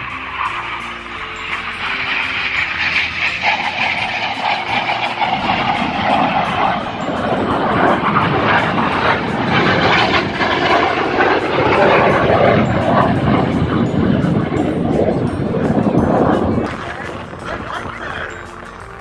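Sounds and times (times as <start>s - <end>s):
jet engine passing: 0.0s - 19.0s.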